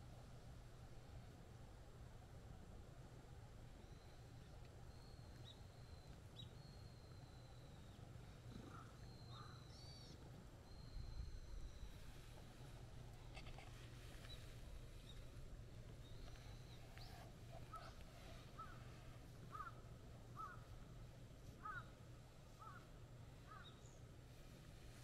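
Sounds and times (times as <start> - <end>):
low steady hum: 0.0 - 25.0
faint short animal calls: 8.3 - 12.4, 16.2 - 19.8, 20.4 - 20.7, 21.6 - 22.0, 22.6 - 22.9.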